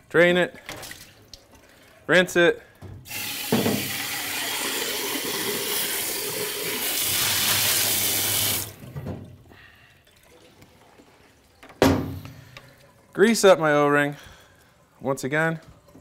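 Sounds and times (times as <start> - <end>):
tap water running into sink: 3.0 - 9.0.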